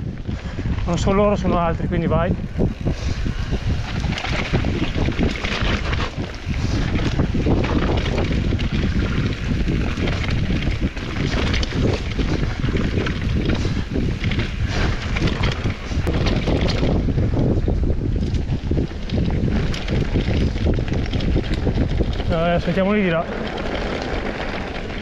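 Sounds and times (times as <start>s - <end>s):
tyres rumbling over dirt: 0.0s - 25.0s
wind buffeting microphone: 0.0s - 25.0s.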